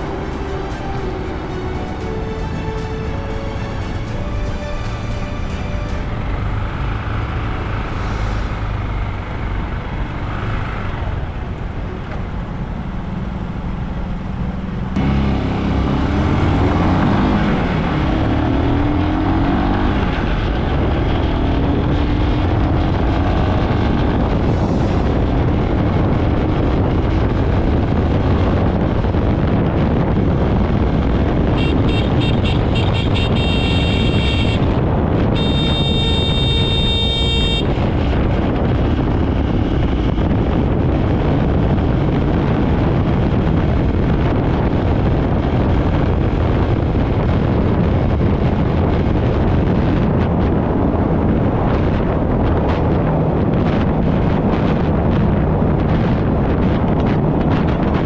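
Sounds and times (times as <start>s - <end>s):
road noise: 0.0s - 58.0s
motorbike engine: 5.6s - 58.0s
horn honking: 31.3s - 38.2s.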